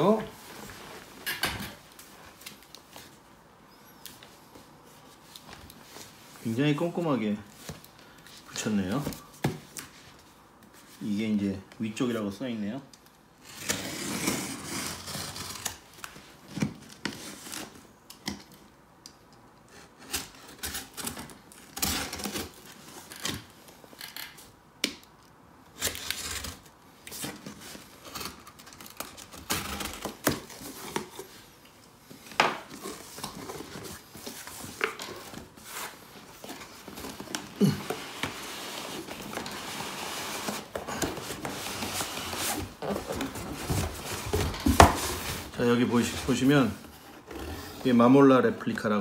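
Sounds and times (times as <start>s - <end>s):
cardboard crackling: 32.1s - 48.2s.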